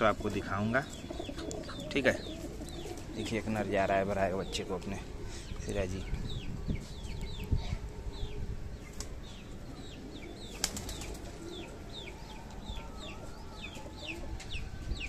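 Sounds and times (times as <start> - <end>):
pigeon wings flapping: 10.5 - 11.5.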